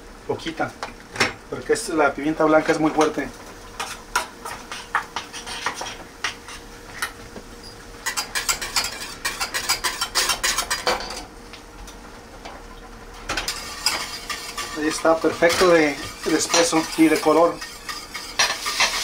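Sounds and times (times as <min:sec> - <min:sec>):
utensil scraping and clinking in pot: 0:02.7 - 0:07.1, 0:08.0 - 0:11.2, 0:13.2 - 0:19.0.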